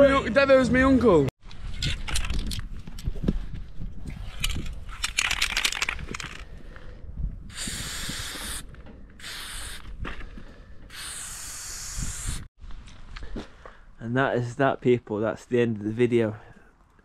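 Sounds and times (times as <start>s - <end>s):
spray can hissing: 7.5s - 8.6s, 9.2s - 9.9s, 10.9s - 12.5s
spray can rattling: 7.5s - 8.6s, 9.2s - 9.9s, 10.9s - 12.4s.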